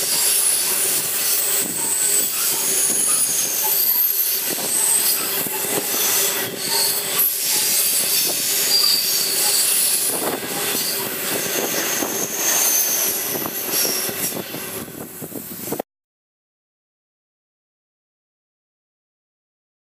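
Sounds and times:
wheels squealing against rails: 0:00.0 - 0:15.8.

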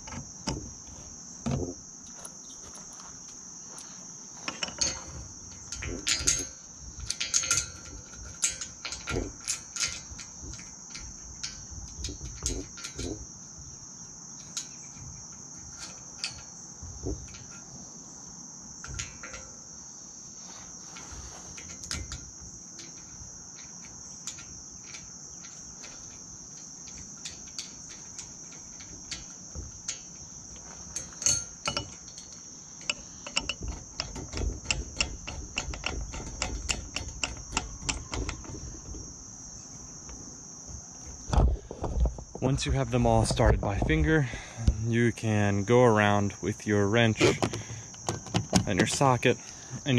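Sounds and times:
insects buzzing: 0:00.0 - 0:49.9
small metal clicks and taps: 0:04.5 - 0:13.2, 0:14.4 - 0:17.7, 0:18.8 - 0:19.6, 0:21.6 - 0:39.0.

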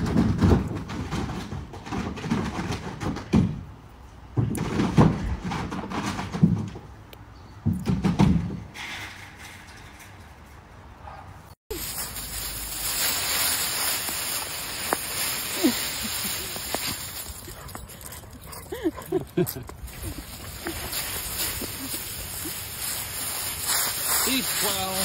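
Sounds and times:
dog digging through leaves: 0:11.7 - 0:17.7, 0:19.9 - 0:25.0.

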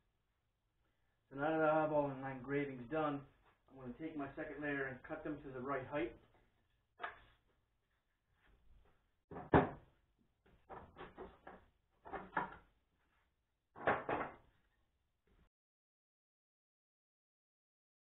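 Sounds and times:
wooden boards knocking and clattering: 0:09.3 - 0:09.9, 0:10.5 - 0:12.7, 0:13.8 - 0:14.5.

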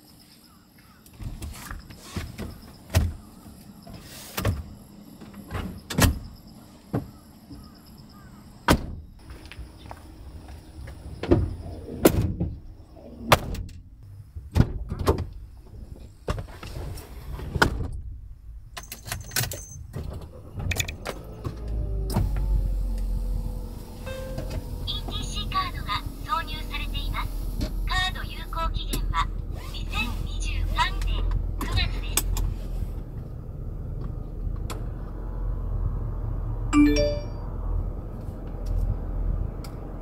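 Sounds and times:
van doors thumping and clunking: 0:01.2 - 0:03.6, 0:04.4 - 0:09.4, 0:10.9 - 0:16.5.

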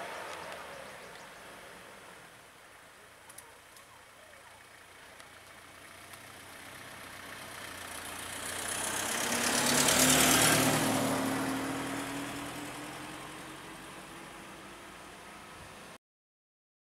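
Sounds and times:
vehicle passing by: 0:05.7 - 0:16.0.

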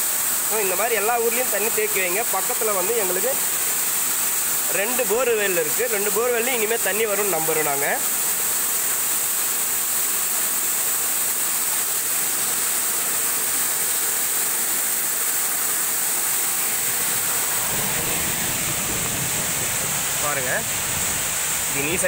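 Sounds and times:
water pouring into a well: 0:00.0 - 0:22.0
low rumble: 0:17.1 - 0:21.7.

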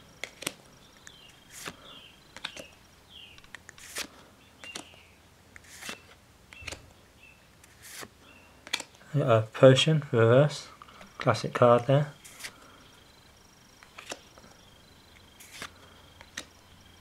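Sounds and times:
cards being shuffled by hand: 0:00.2 - 0:06.9, 0:07.6 - 0:09.0, 0:12.2 - 0:12.6, 0:13.8 - 0:14.5, 0:15.4 - 0:16.5.

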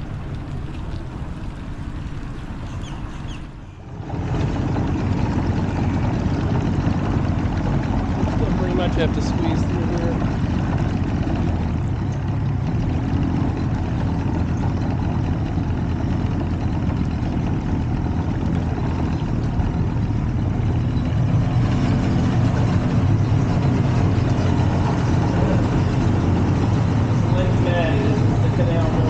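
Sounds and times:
outboard motor running: 0:00.0 - 0:29.0.

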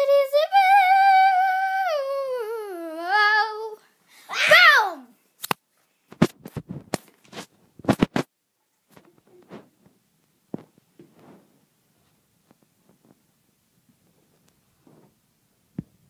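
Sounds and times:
sharp knocks and scrapes: 0:06.1 - 0:08.3
faint taps and rustles: 0:06.1 - 0:16.0.

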